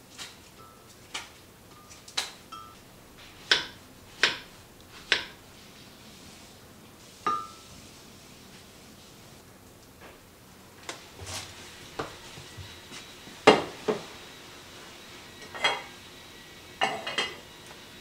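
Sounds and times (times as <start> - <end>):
knife slicing apple on board: 3.4 - 5.4.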